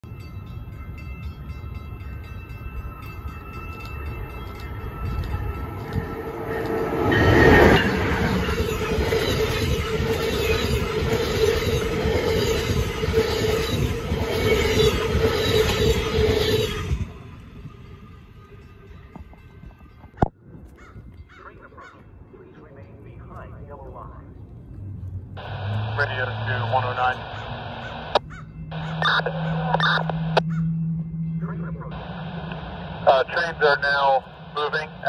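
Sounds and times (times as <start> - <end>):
rhythmic clatter of train wheels: 0.0 - 20.3
train passing at speed: 0.1 - 19.9, 22.3 - 35.0.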